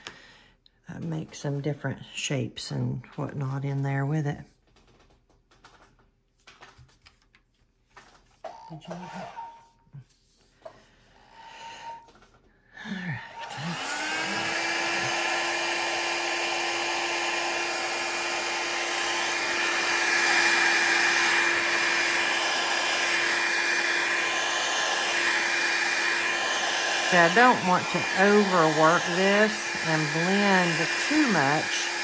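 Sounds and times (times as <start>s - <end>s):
hair dryer motor whine: 13.2s - 32.0s.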